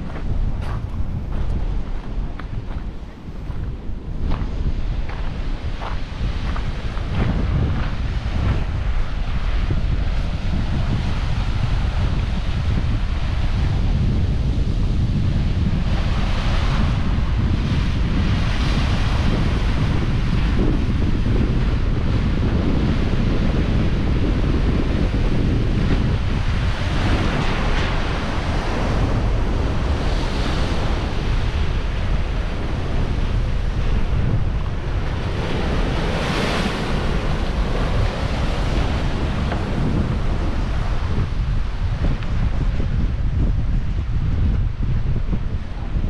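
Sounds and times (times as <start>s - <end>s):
wind rumble on microphone: 0.0s - 46.0s.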